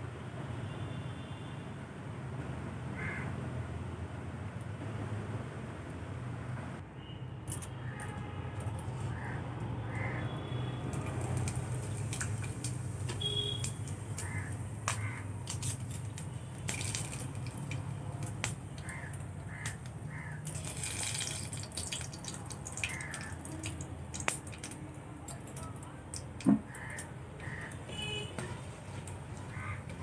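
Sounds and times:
spices sizzling in hot oil: 10.9 - 27.0
sharp pops: 11.3 - 18.9.

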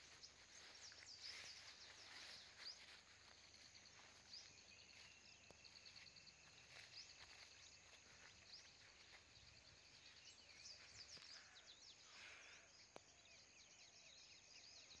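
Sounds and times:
faint bird chirps: 0.0 - 15.0.

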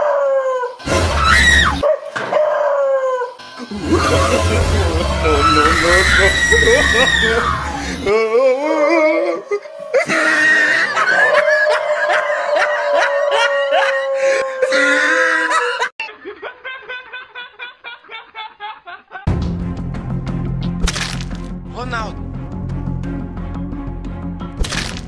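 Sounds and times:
background music: 3.6 - 11.5, 19.3 - 25.0
laughter: 3.7 - 5.1, 10.6 - 13.5, 15.2 - 19.3.

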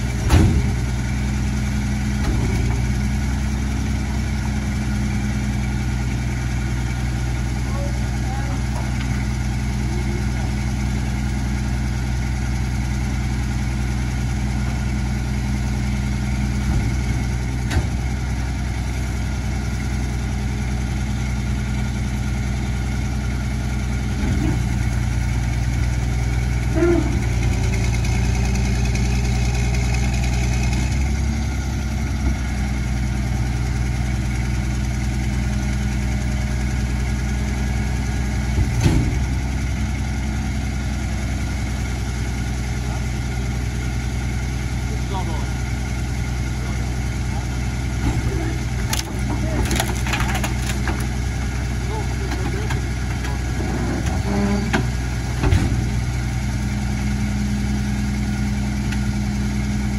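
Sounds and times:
hydraulic packer whine: 0.0 - 12.1, 23.2 - 34.3, 35.1 - 59.9
garbage truck engine idling: 0.0 - 59.9.

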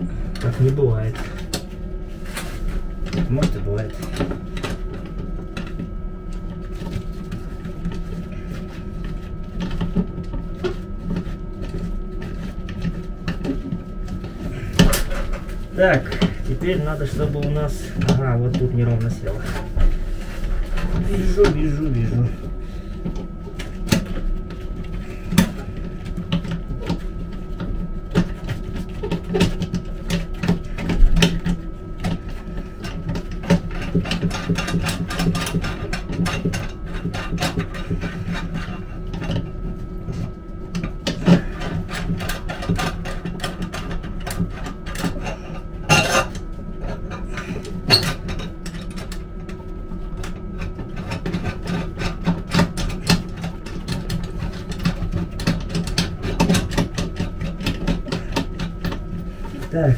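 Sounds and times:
steady low hum: 0.0 - 59.9
clicks and knocks of hand work: 50.2 - 59.9.

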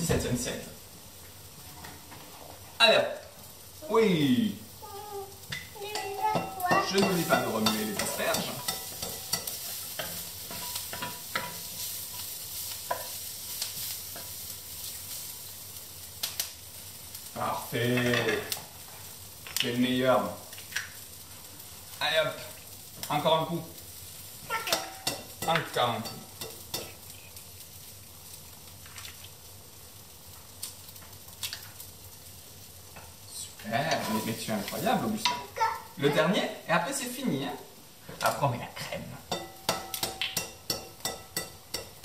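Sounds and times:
asparagus sizzling in a frying pan: 0.0 - 42.0
spatula knocking and scraping pan: 5.5 - 14.5, 24.6 - 26.9, 39.3 - 42.0.

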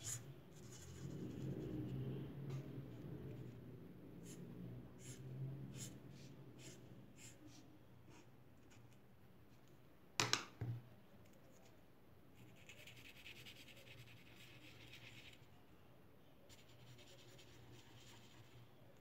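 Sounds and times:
marker scratching on paper: 0.0 - 1.7, 4.2 - 4.4, 5.0 - 8.9, 16.5 - 18.6.

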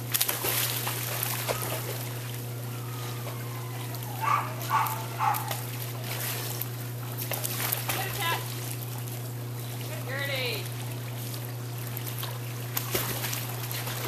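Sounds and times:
dog splashing into pool: 0.0 - 2.6, 3.2 - 9.9, 10.7 - 14.0
steady low hum: 0.0 - 14.0
water splashing and lapping: 0.0 - 14.0
dog yipping: 3.2 - 5.7.

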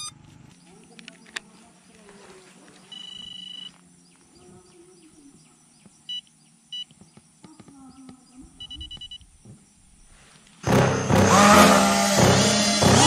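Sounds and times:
radio controller beeping: 0.0 - 0.3, 2.9 - 3.8, 8.6 - 9.4.

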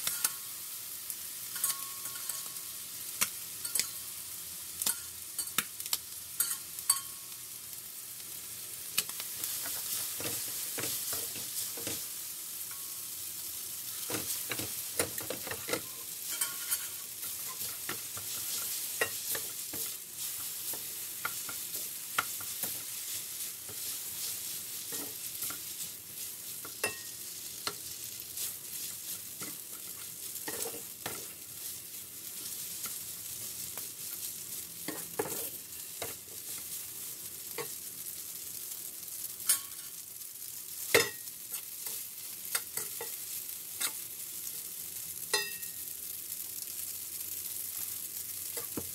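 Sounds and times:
food sizzling in a pan: 0.0 - 48.9.

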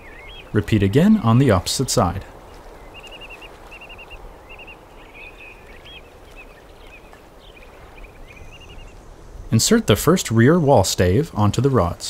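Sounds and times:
songbird trilling: 0.0 - 1.7, 2.4 - 9.0.

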